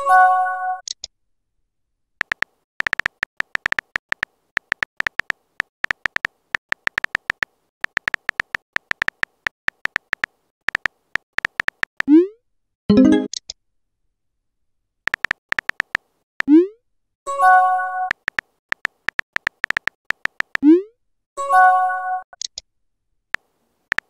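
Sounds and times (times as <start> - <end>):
phone keyboard tap clicks: 2.2 - 12.1, 15.1 - 16.0, 18.1 - 20.6
multi-tone message chime: 12.9 - 13.3.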